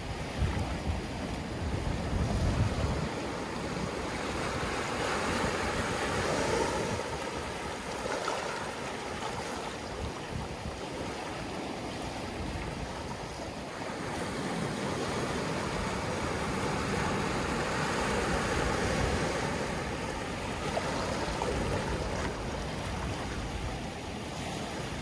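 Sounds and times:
ocean surf washing over rocks: 0:00.0 - 0:25.0.

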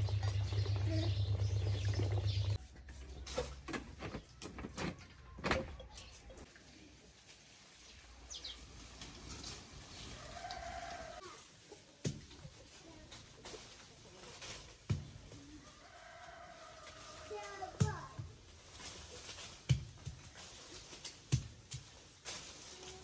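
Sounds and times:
electric motor humming: 0:00.0 - 0:02.6.

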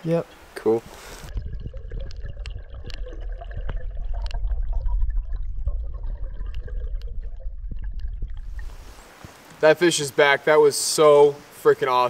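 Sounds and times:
underwater stream current rumble: 0:00.9 - 0:09.5
underwater clicks and crackles: 0:01.2 - 0:09.6.

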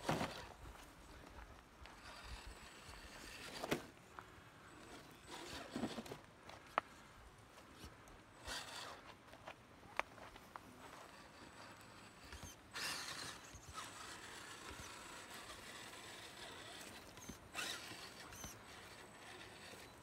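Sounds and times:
tyres crunching on dirt and rock: 0:00.0 - 0:06.9
small electric motor whirring: 0:01.9 - 0:03.9, 0:04.7 - 0:06.2, 0:07.7 - 0:09.2, 0:10.8 - 0:20.0.

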